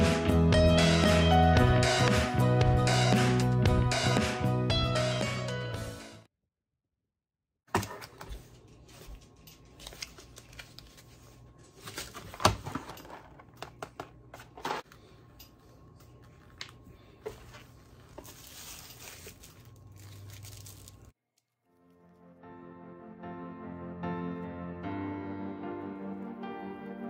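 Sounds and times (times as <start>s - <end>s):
plastic crinkling: 16.2s - 22.2s.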